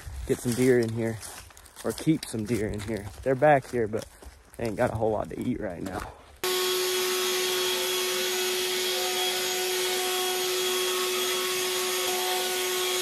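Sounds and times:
leaf blower running: 6.4 - 13.0.

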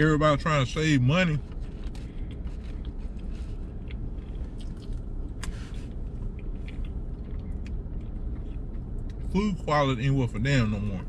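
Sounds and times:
low rumble inside vehicle cab: 0.0 - 11.0
person chewing food: 1.5 - 9.3.

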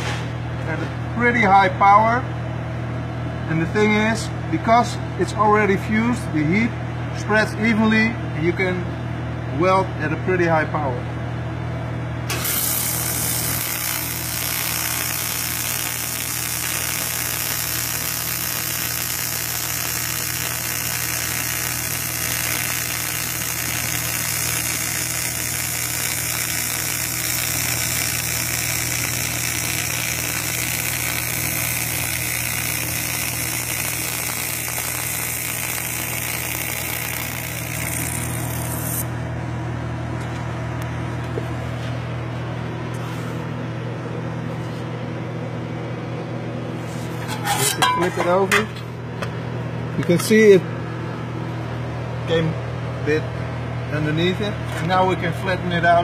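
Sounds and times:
welding arc hissing: 12.3 - 39.1.

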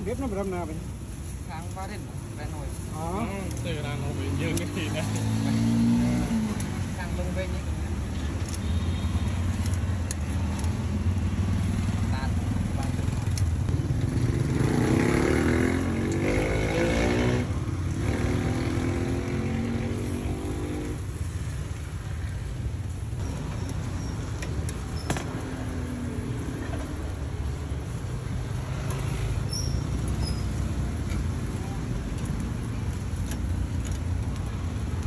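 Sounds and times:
low traffic rumble: 0.0 - 35.0
vehicle engine passing: 3.9 - 7.0.

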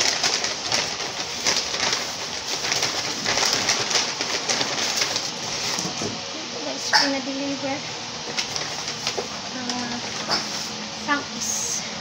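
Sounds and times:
paper bag rustling: 0.0 - 6.2, 8.2 - 10.8.

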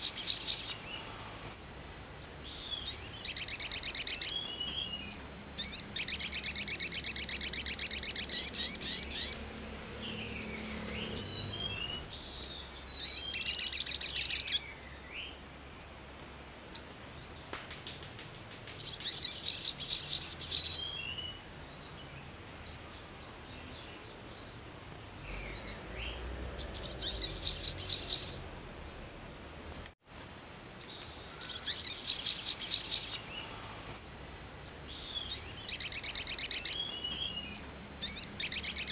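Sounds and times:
sunbird high trilling: 2.1 - 14.8, 25.2 - 28.4, 30.8 - 33.6, 34.6 - 38.9
thin bird chirps: 2.1 - 14.9, 16.5 - 29.2, 30.8 - 33.5, 34.6 - 38.9.

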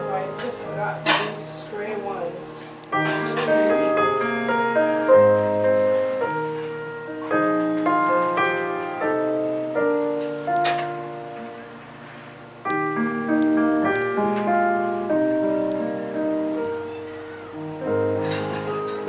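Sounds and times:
slow piano music: 0.0 - 19.0.

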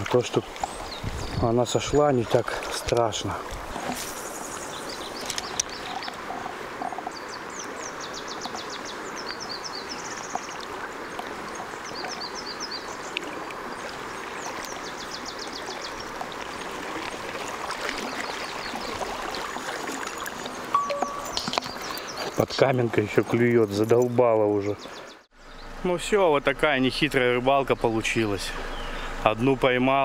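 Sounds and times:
river current rushing: 0.0 - 22.4
songbird singing: 0.0 - 30.0.

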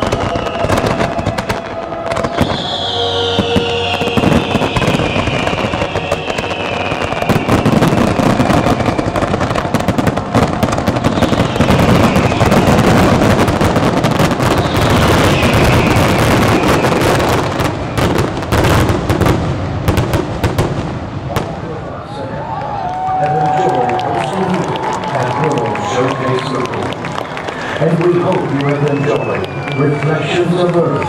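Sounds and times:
fireworks bursting: 0.0 - 21.9.

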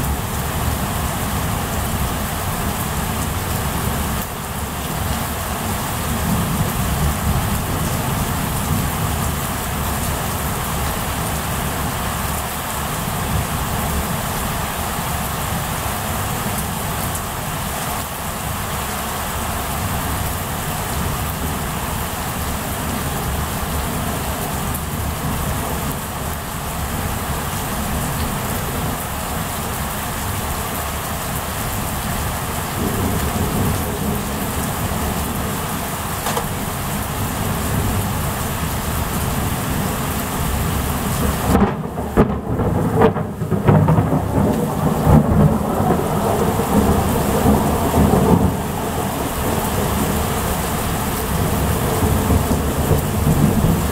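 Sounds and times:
heavy rain: 0.0 - 53.9
thunder rumbling: 32.2 - 38.4, 40.5 - 53.9.

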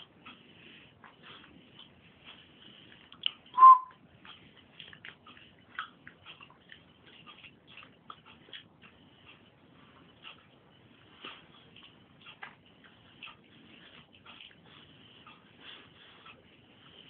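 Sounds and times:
puppies scratching and clicking: 4.2 - 17.0.

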